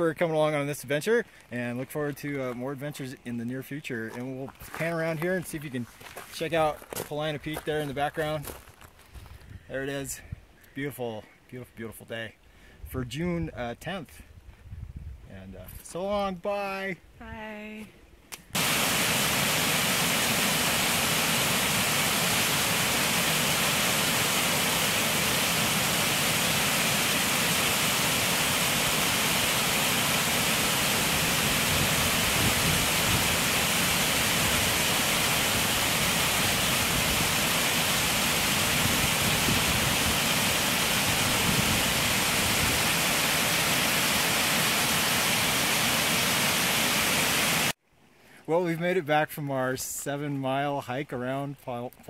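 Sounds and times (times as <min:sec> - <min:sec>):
waterfall rushing: 0:18.6 - 0:47.8.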